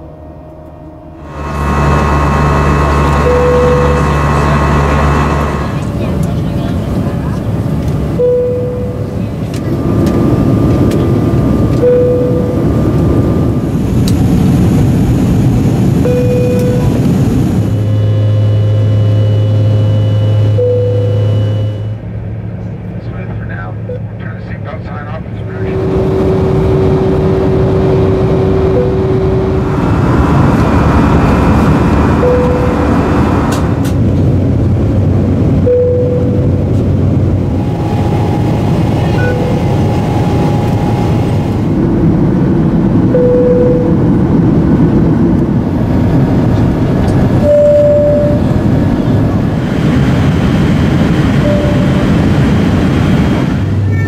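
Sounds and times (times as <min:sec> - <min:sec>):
cabin air and engine roar: 0:00.0 - 0:54.0
seatbelt sign chime: 0:08.2 - 0:09.1, 0:11.8 - 0:12.6, 0:37.6 - 0:41.3.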